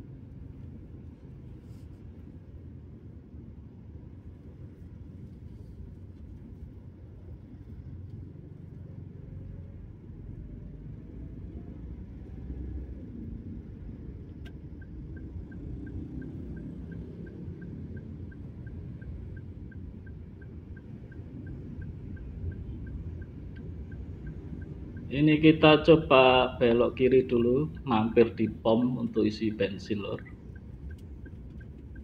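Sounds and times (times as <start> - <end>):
car engine and tyres rumbling: 0.0 - 32.0
turn indicator ticking: 14.3 - 26.0, 26.8 - 32.0.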